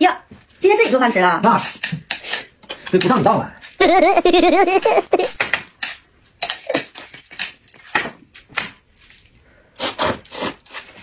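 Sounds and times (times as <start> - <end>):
wet slurps and mouth noises: 9.0 - 11.0
slurping noodles: 9.8 - 11.0.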